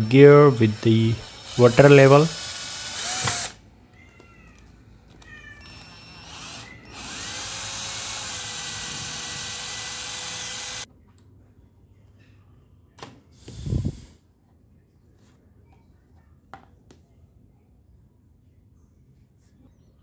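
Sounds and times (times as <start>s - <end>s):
cordless drill boring plastic: 0.0s - 3.6s, 5.6s - 10.9s.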